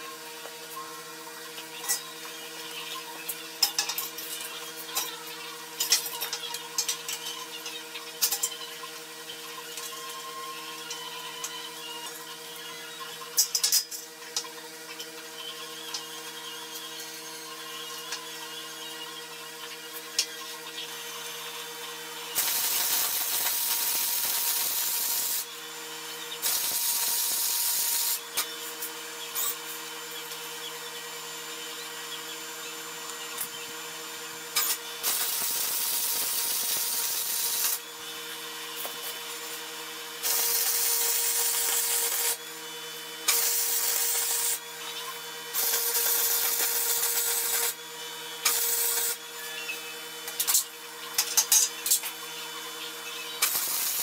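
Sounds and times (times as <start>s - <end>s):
welding arc crackling: 22.4s - 25.5s, 26.4s - 28.2s, 34.6s - 38.9s, 40.2s - 42.4s, 43.2s - 44.6s, 45.5s - 47.8s, 48.4s - 49.2s, 53.4s - 54.0s.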